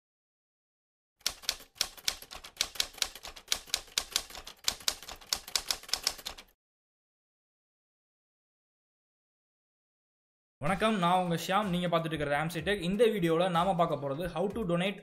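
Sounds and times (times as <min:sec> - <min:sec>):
typewriter keys clicking: 0:01.2 - 0:06.5.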